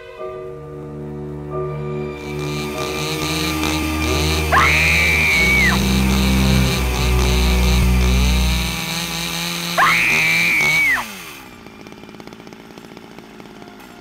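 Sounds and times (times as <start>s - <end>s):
chainsaw running: 2.2s - 14.0s
high shrill tone: 2.3s - 8.8s, 9.8s - 11.2s.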